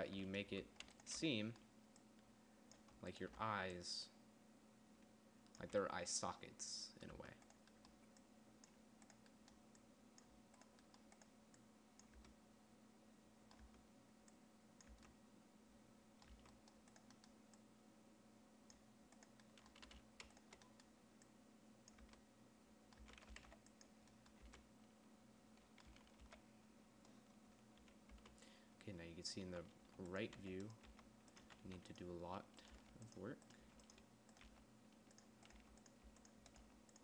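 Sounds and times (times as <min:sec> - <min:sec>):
low steady hum: 0:00.0 - 0:37.0
keyboard keys clicking: 0:14.8 - 0:15.2, 0:16.2 - 0:17.6, 0:18.7 - 0:20.9, 0:22.9 - 0:24.7, 0:25.6 - 0:26.4, 0:27.8 - 0:28.4, 0:29.6 - 0:37.0.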